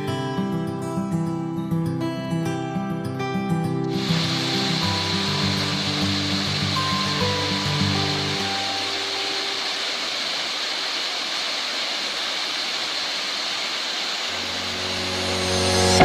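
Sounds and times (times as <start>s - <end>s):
waterfall rushing: 3.9s - 16.0s
background music: 14.6s - 16.0s.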